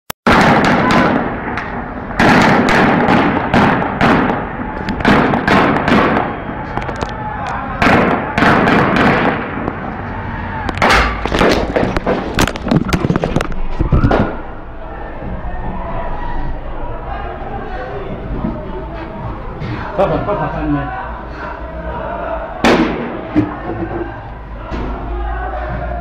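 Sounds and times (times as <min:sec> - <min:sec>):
gunshots echoing off buildings: 0:00.3 - 0:16.1, 0:22.0 - 0:26.0.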